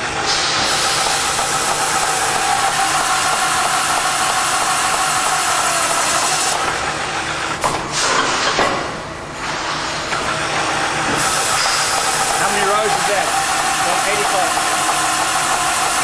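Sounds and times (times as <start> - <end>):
machine running: 0.0 - 16.0
drill bit cutting steel: 0.9 - 6.6, 11.2 - 16.0.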